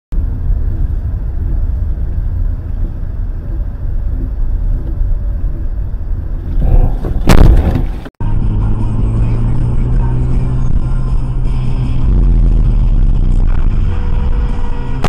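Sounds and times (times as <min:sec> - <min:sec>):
car driving rumble from inside: 0:00.1 - 0:15.0
car crash: 0:06.5 - 0:08.1.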